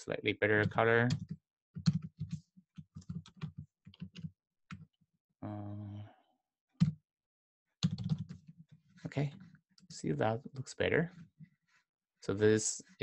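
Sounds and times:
typing on computer keyboard: 1.1 - 4.8, 7.8 - 8.4.

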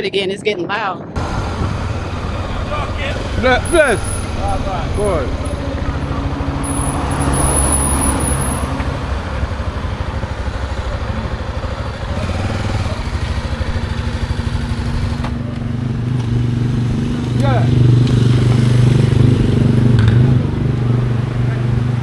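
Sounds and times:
wind on microphone: 0.0 - 7.3
motorcycle engine running: 1.2 - 22.0.

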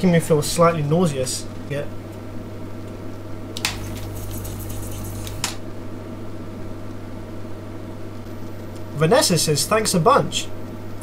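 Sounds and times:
steady low hum: 0.0 - 11.0
desoldering pump suction hiss: 3.6 - 5.6.

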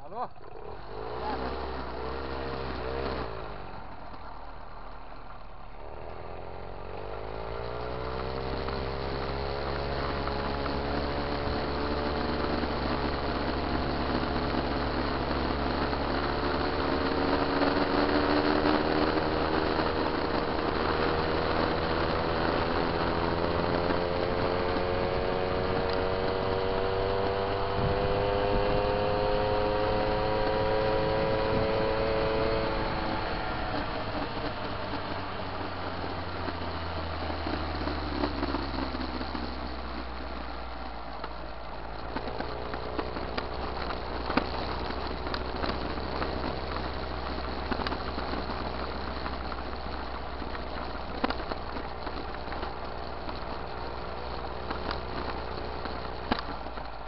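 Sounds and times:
moped engine accelerating: 0.0 - 57.0
wind rushing over microphone: 7.3 - 57.0.

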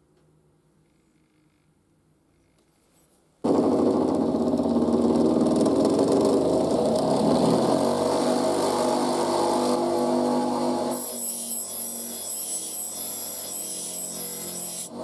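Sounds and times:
bench grinder motor hum: 3.5 - 15.0
knife blade grinding scrape: 10.9 - 14.9.

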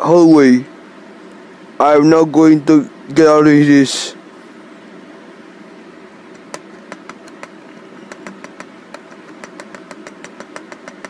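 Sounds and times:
steady low hum: 0.0 - 11.0
sharp clicks: 6.3 - 11.0.

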